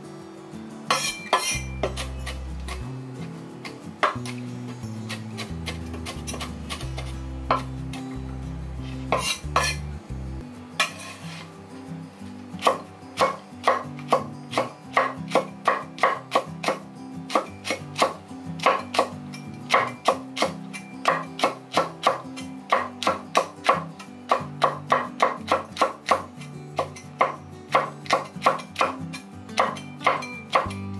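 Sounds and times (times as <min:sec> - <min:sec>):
cleaver chopping on wooden board: 0:09.1 - 0:09.8, 0:12.6 - 0:19.1, 0:19.7 - 0:29.0, 0:29.6 - 0:30.8.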